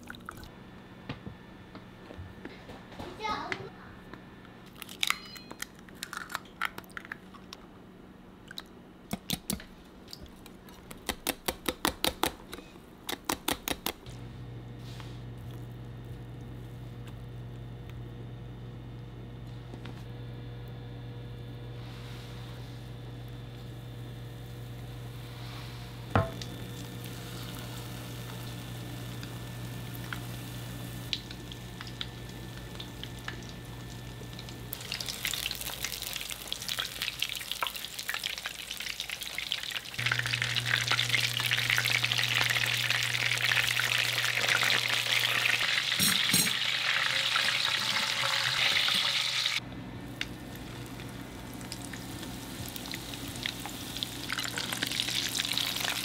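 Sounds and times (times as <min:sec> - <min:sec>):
steady low hum: 0:14.0 - 0:37.4, 0:49.6 - 0:56.0
food frying in hot oil: 0:23.5 - 0:56.0.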